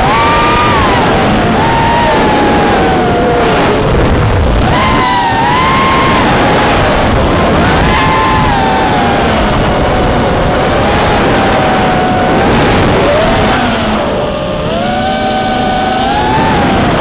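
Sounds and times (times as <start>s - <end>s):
quadcopter motors whining: 0.0s - 17.0s
wind rushing: 0.0s - 17.0s.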